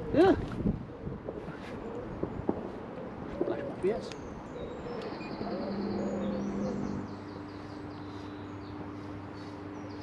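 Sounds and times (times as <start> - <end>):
birds chirping and trilling: 0.8 - 10.0
low drone: 4.2 - 10.0.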